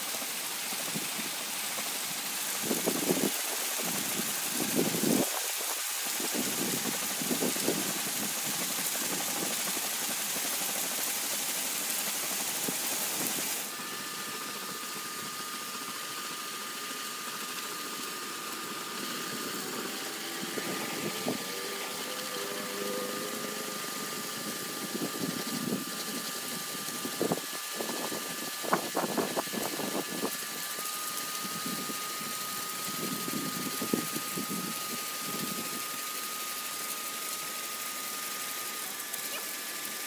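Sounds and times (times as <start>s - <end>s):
pressure washer water hiss: 0.0s - 40.0s
pump running: 0.0s - 40.0s
high whine: 17.5s - 35.8s.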